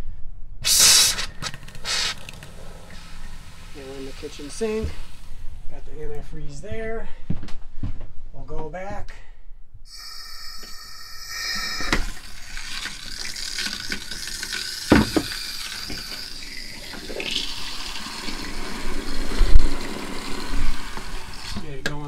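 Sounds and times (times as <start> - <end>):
liquid running from faucet: 0.7 - 5.5, 9.9 - 21.8.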